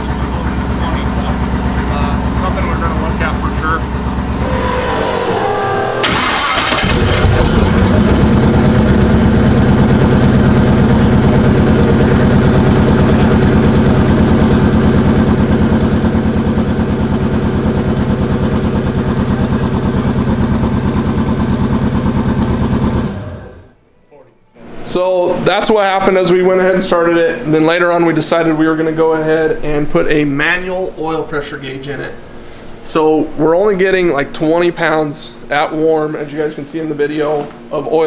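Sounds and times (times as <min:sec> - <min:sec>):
car engine idling: 0:00.0 - 0:23.8
loud rush of noise: 0:04.2 - 0:07.8.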